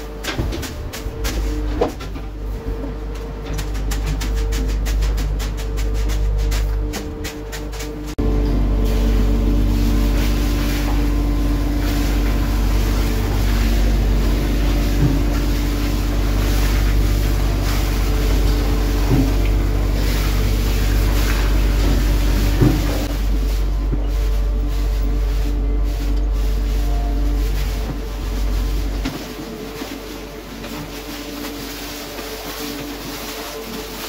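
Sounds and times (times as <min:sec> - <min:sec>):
boat engine droning: 0:00.0 - 0:34.0
water hissing from hose: 0:08.7 - 0:34.0.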